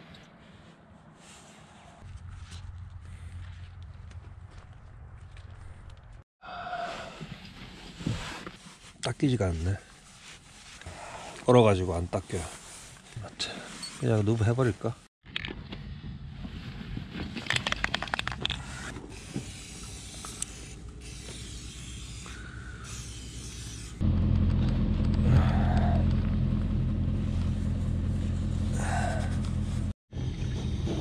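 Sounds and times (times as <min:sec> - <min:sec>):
aerosol spray hissing: 0:19.2 - 0:24.0.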